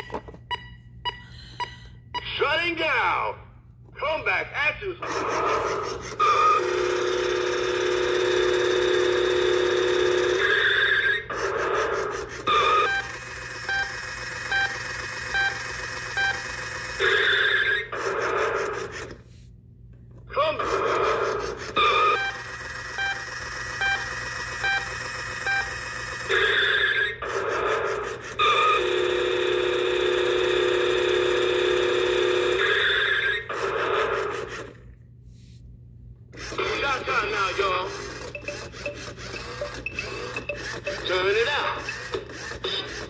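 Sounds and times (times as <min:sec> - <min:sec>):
toy electronic sound burst: 0:05.0 - 0:19.1, 0:20.6 - 0:34.7, 0:36.4 - 0:43.0
short electronic beeps: 0:38.2 - 0:42.1.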